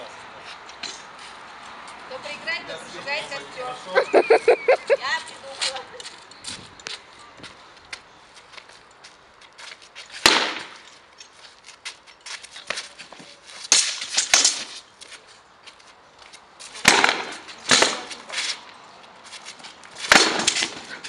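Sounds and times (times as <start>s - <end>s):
faint clicks and scuffs: 5.2s - 21.0s.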